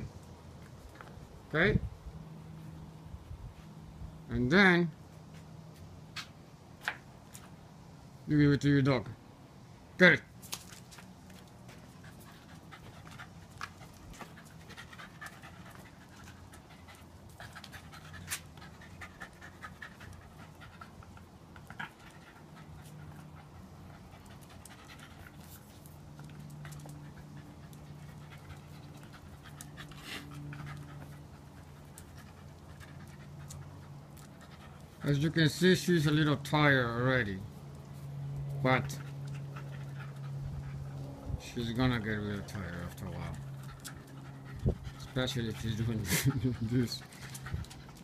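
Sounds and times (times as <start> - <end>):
dog panting: 11.3 - 36.4, 38.0 - 48.0.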